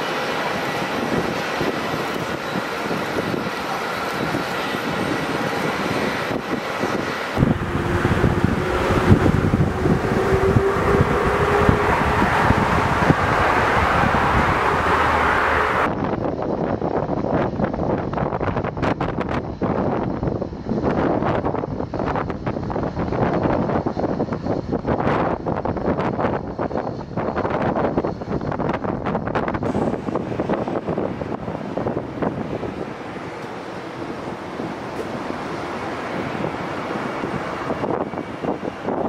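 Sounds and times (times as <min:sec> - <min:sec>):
jet engines rushing: 0:00.0 - 0:16.0, 0:19.4 - 0:39.0
wind buffeting microphone: 0:00.0 - 0:39.0
faint whining tones: 0:07.4 - 0:15.9.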